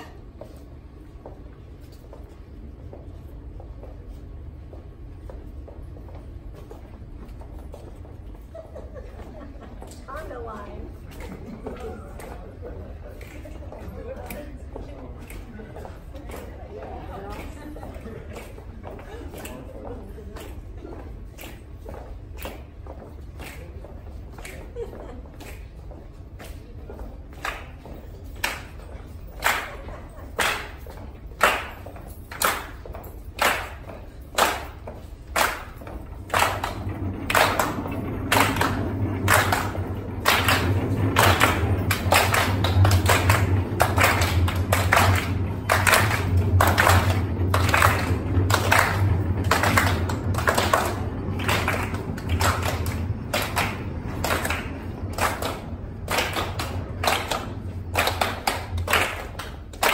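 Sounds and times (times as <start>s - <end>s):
people clapping in rhythm: 9.4s - 59.9s
low rumble: 35.8s - 59.2s.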